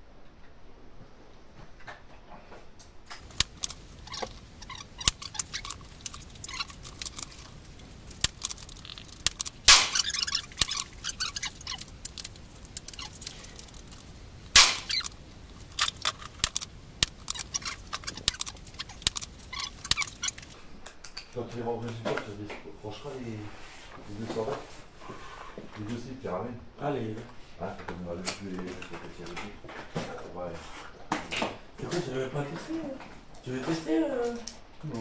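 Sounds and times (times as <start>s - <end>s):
small clicks and knocks: 2.8s - 22.2s
gunshots with echo: 14.6s - 14.9s.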